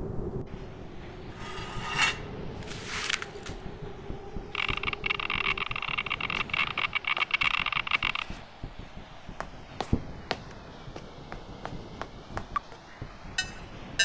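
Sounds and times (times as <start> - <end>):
steady low hum: 0.0 - 14.0
crackling electronic gauge tone: 4.5 - 8.4.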